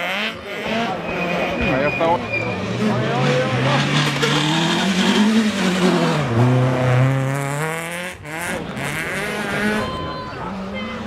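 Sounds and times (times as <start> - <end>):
rally car engine revving: 0.0 - 11.0
rally car passing at high revs: 0.0 - 11.0.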